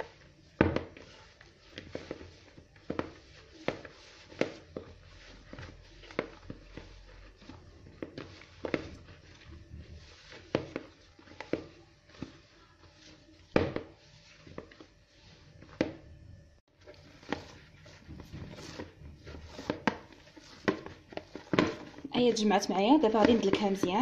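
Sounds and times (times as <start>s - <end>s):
dough thuds and slaps in bowl: 0.0s - 14.9s, 15.5s - 16.1s, 16.9s - 24.0s.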